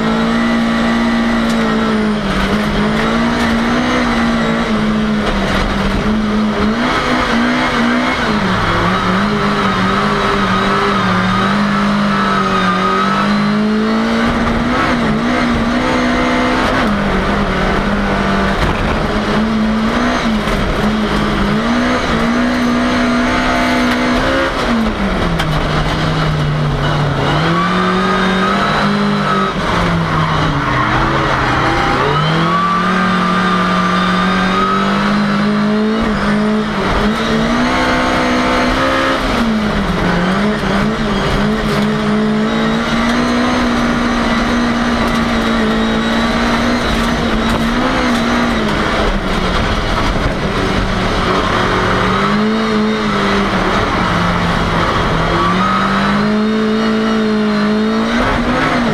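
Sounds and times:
race car engine at high revs: 0.0 - 58.9.

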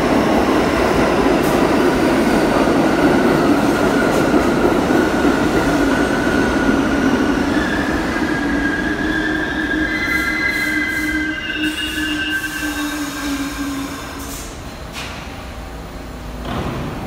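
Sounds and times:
subway train brakes squealing: 3.0 - 16.4.

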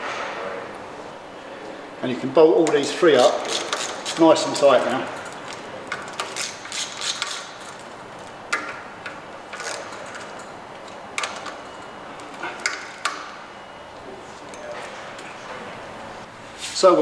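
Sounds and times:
hand ratchet clicking: 3.2 - 4.6, 5.2 - 7.8.

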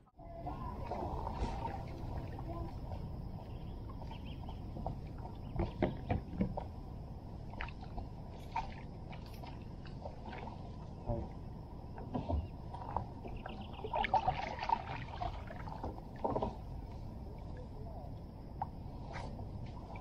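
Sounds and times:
water splashing around kayak: 0.4 - 20.0
knocks on boat: 4.8 - 6.7.

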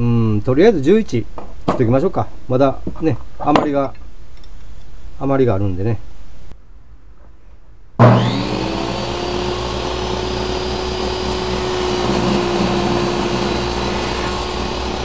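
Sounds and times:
table saw cutting wood: 8.0 - 15.0.

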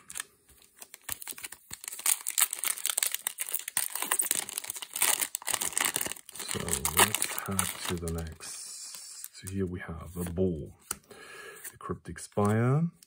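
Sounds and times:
foil wrapper crinkling torn open: 0.0 - 8.4.

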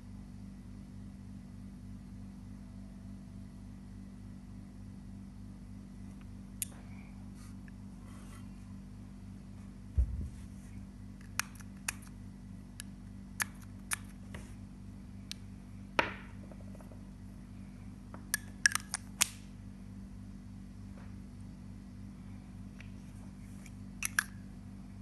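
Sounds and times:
steady low hum: 0.0 - 25.0
dull thump: 9.9 - 10.5.

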